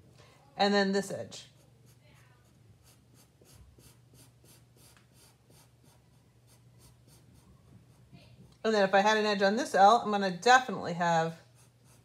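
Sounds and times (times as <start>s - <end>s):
marker scratching on paper: 1.4s - 8.5s, 11.4s - 12.0s.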